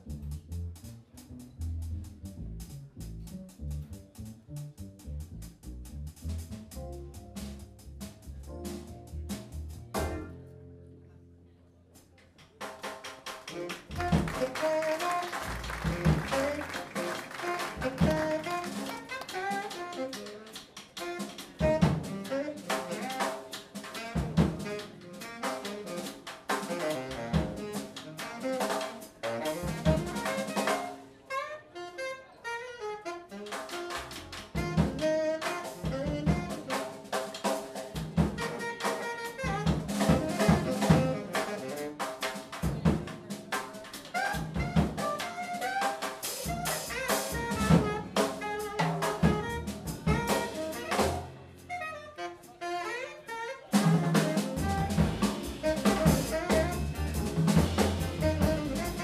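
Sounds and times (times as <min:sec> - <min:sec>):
drum kit: 0:00.0 - 0:10.5, 0:12.0 - 0:31.1, 0:33.2 - 0:53.0, 0:53.7 - 0:59.0
upright bass: 0:00.0 - 0:10.6, 0:13.8 - 0:14.6, 0:15.4 - 0:18.8, 0:49.0 - 0:51.3, 0:53.8 - 0:59.0
saxophone melody: 0:13.5 - 0:23.4, 0:24.0 - 0:37.0, 0:38.4 - 0:42.3, 0:44.1 - 0:59.0.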